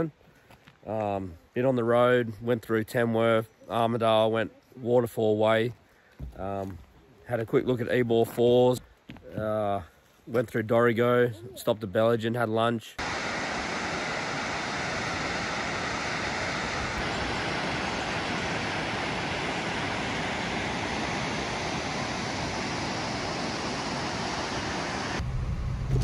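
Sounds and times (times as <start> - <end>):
waterfall rushing: 13.0 - 25.2
car on road humming: 13.0 - 26.0.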